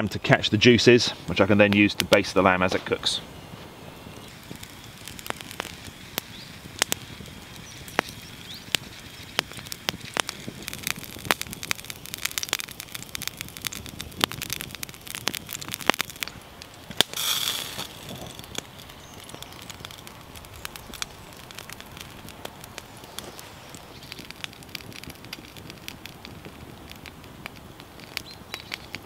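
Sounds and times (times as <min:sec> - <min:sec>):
campfire crackling: 0:00.0 - 0:29.0
sharp pops from fire: 0:01.2 - 0:29.0
brief hiss: 0:17.1 - 0:18.0.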